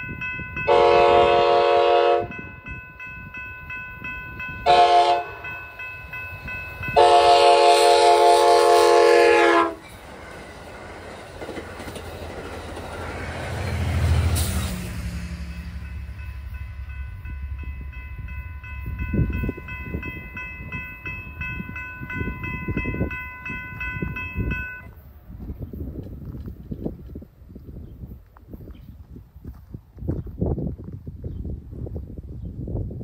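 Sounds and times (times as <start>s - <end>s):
crossing bell ringing: 0.0s - 25.1s
train rumbling past: 0.0s - 30.7s
train horn: 0.6s - 2.5s, 4.6s - 5.6s, 6.9s - 9.9s.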